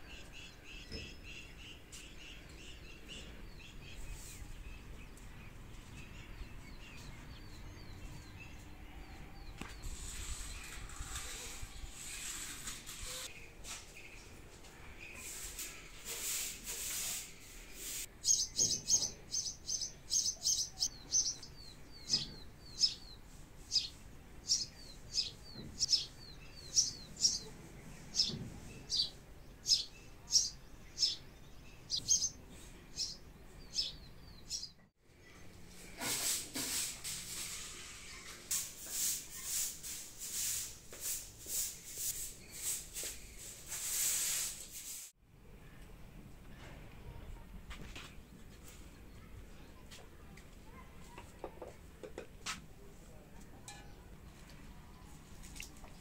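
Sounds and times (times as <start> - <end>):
broom sweeping concrete floor: 9.6 - 21.3, 35.7 - 45.2
small bird chirping: 17.8 - 35.4.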